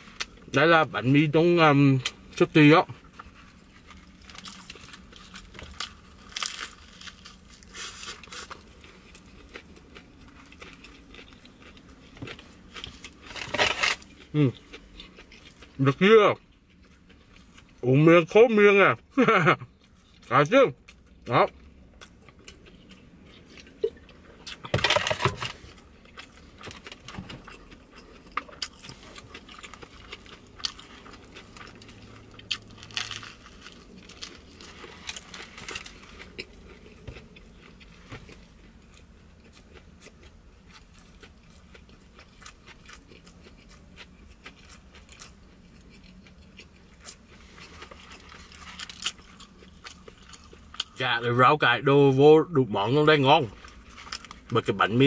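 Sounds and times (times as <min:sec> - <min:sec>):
chewing crusty sandwich: 0:00.0 - 0:51.3, 0:52.4 - 0:55.0.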